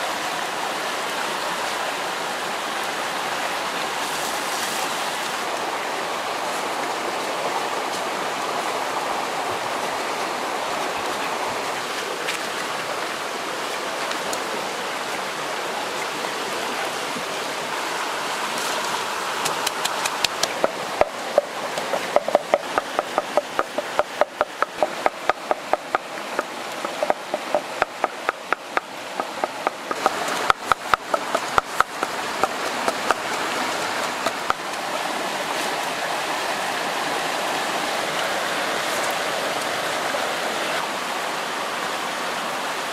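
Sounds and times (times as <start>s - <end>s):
stream running: 0.0s - 42.9s
wooden pestle pounding in mortar: 19.6s - 26.0s, 26.8s - 33.2s.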